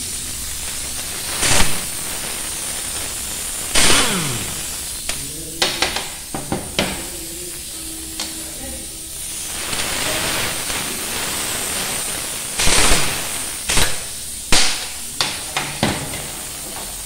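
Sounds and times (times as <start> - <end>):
air hissing: 0.0 - 17.0
impact wrench hammering: 3.8 - 4.7.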